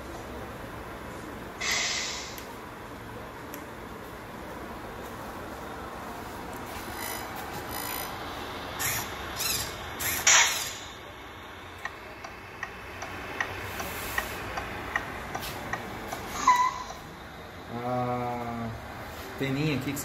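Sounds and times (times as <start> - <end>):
short hisses: 1.6 - 2.4
steady light ticking: 11.3 - 16.3.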